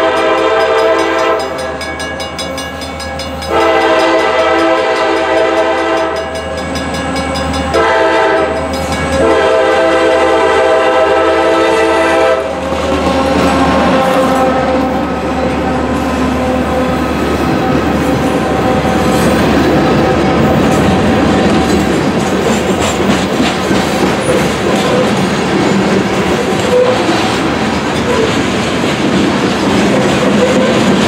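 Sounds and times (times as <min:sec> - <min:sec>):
locomotive air horn blasts: 0:00.0 - 0:01.8, 0:03.5 - 0:06.3, 0:07.7 - 0:17.2
train wheels on rails: 0:00.0 - 0:31.0.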